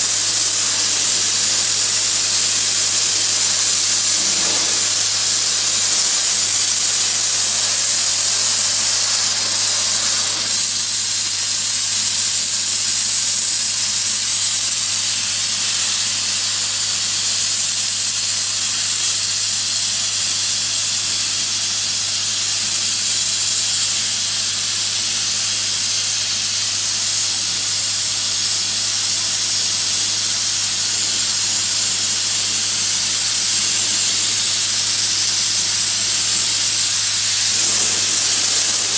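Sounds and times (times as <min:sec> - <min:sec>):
steady low hum: 0:00.0 - 0:12.1
bead blaster hissing: 0:00.0 - 0:38.9.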